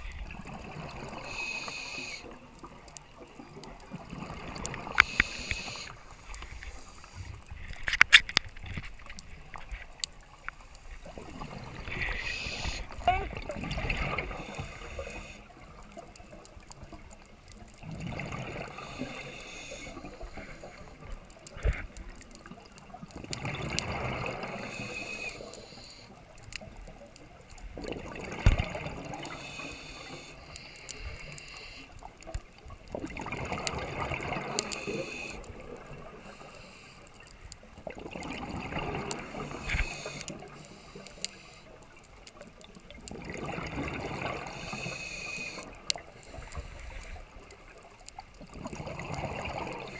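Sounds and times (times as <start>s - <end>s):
underwater exhale bubbles: 0.0s - 7.5s, 11.0s - 16.0s, 17.7s - 27.0s, 27.6s - 37.1s, 37.8s - 41.8s, 42.4s - 49.9s.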